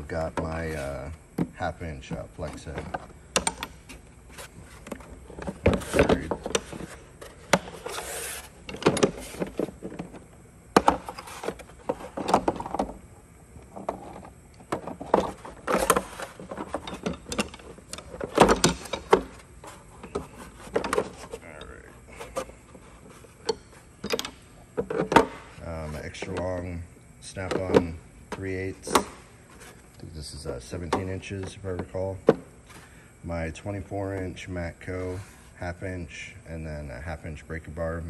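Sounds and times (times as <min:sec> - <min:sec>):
tools scraping in drawer: 0:04.3 - 0:10.0.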